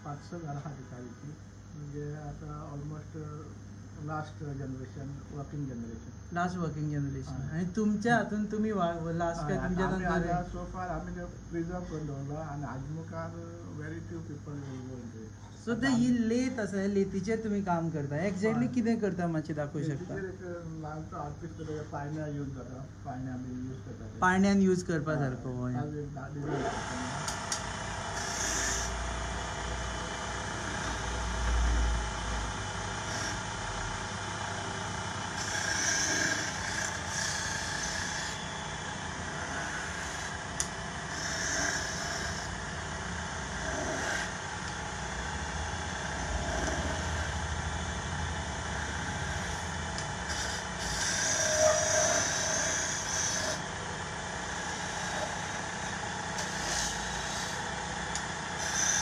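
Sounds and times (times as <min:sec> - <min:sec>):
wood lathe running: 0:26.5 - 0:59.0
chisel scraping spinning wood: 0:26.7 - 0:59.0.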